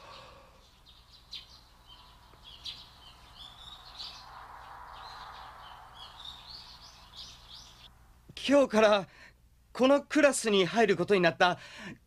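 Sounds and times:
small birds chirping: 0.0s - 7.9s.

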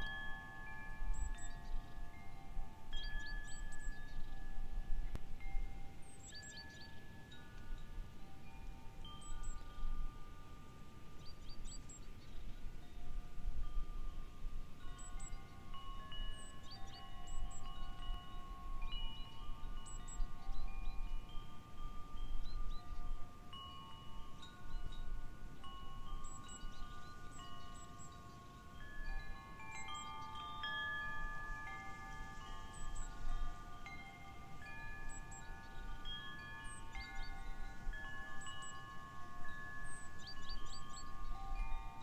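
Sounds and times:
wind chimes ringing: 0.0s - 42.0s.

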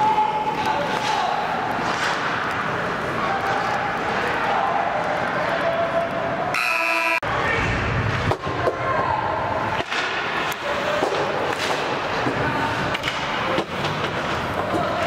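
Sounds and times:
sticks and puck clacking: 0.0s - 6.0s, 9.6s - 15.0s
skating noise: 0.0s - 8.8s, 9.4s - 15.0s.

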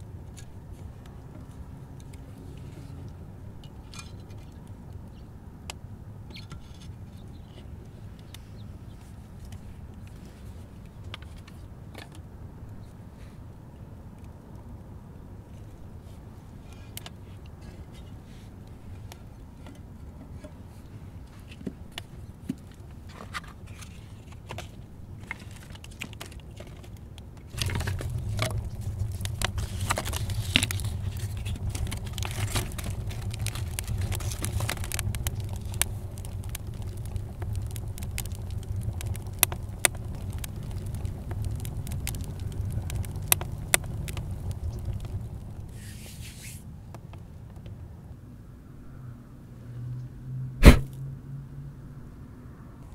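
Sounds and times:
wood fire crackling and popping: 21.2s - 47.6s, 50.6s - 50.9s
sticks scraping and snapping: 27.5s - 42.3s
fire roaring: 27.5s - 46.9s, 50.6s - 51.0s.

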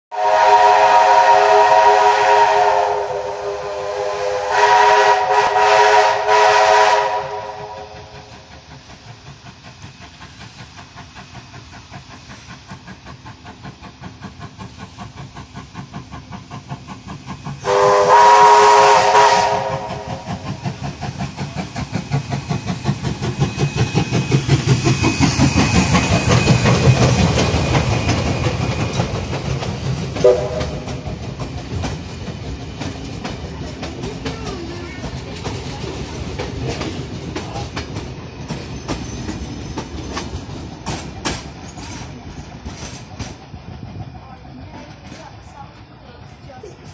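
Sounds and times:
steam whistle: 0.1s - 8.2s, 17.6s - 20.5s, 30.2s - 31.0s
steam locomotive exhaust chuffs: 0.1s - 46.9s
train wheels clickety-clack: 0.2s - 46.9s.

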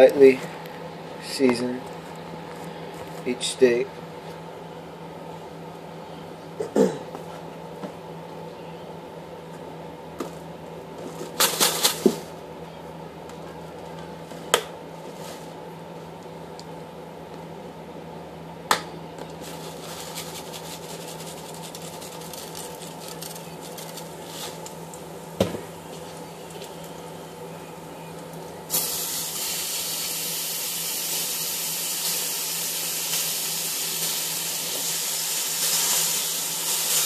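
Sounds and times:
steady low hum: 0.0s - 37.0s
seasoning crackle from bottle: 19.4s - 24.8s, 28.7s - 30.2s, 33.0s - 37.0s.

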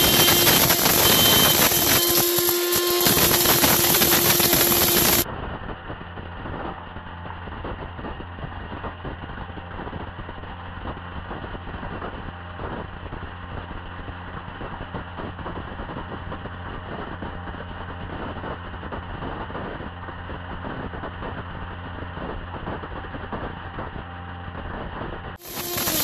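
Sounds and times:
blender drone: 0.0s - 9.4s, 22.2s - 26.0s.

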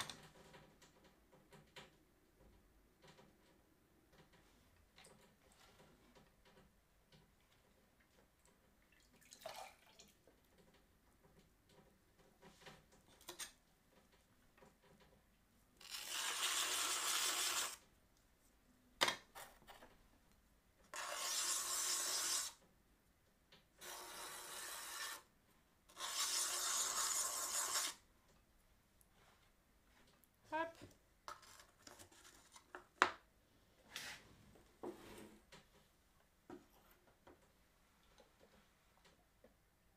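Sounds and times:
hands rubbing clay on potter's wheel: 25.9s - 28.0s.

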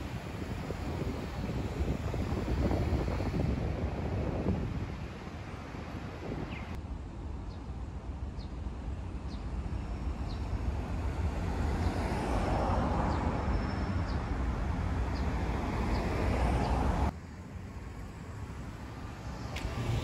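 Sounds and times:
cars passing: 9.7s - 20.0s.

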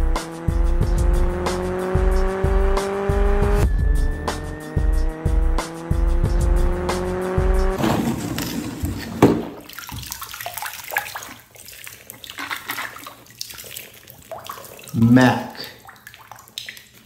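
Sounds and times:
car engine tone rising: 0.0s - 7.8s
music with steady beat: 0.0s - 7.8s
water splashing: 7.8s - 17.0s.

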